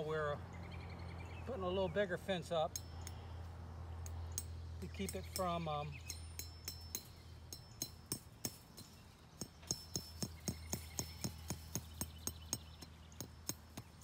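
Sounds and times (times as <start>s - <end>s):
hammer tapping metal: 2.7s - 3.3s, 4.0s - 14.0s.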